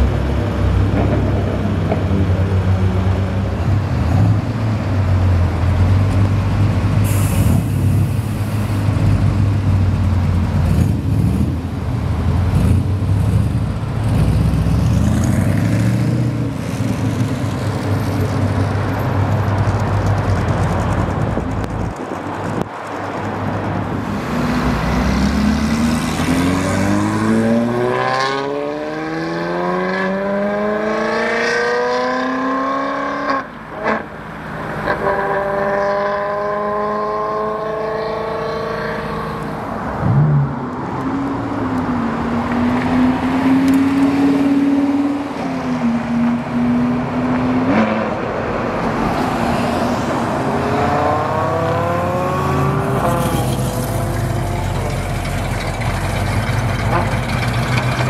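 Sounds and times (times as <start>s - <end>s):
car engine rumbling: 0.1s - 29.0s, 50.2s - 58.0s.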